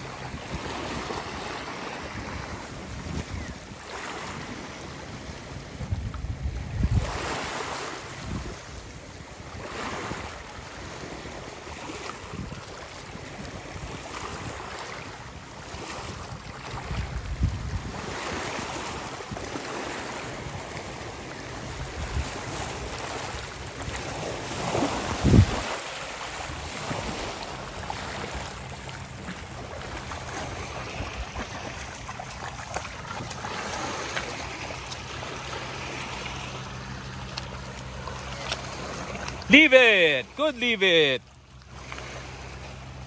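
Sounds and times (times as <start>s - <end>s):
water lapping at shore: 0.0s - 43.0s
wind on microphone: 2.0s - 7.3s, 16.1s - 19.5s, 21.6s - 28.4s.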